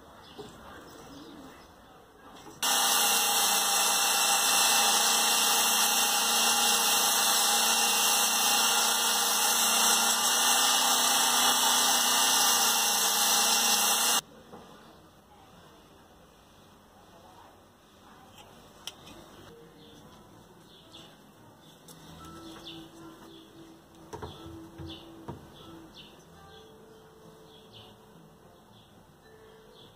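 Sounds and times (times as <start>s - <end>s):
electric drill running: 2.6s - 14.2s.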